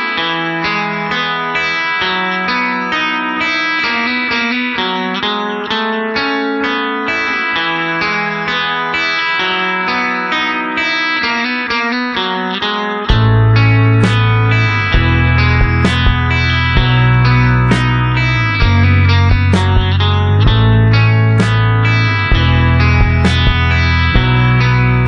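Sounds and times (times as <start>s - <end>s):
plucked guitar melody: 0.0s - 25.0s
bass line: 13.1s - 25.0s.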